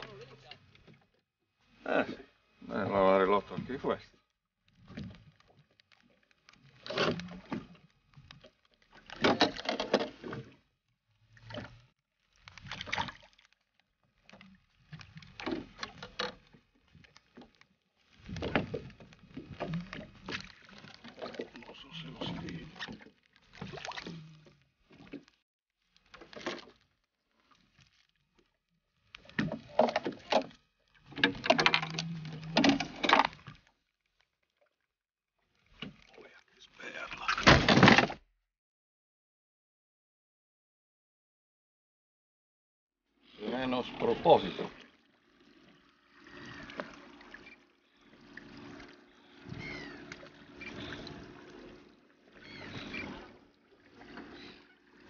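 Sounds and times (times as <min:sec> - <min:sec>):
water lapping against boat hull: 0:00.0 - 0:38.1, 0:43.3 - 0:55.0
net splashing in water: 0:11.4 - 0:13.7.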